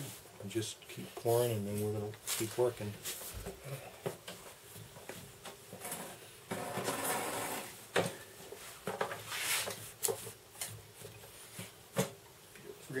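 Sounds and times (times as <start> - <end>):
foam brush rubbing and rustling: 1.2 - 3.4, 8.5 - 11.8.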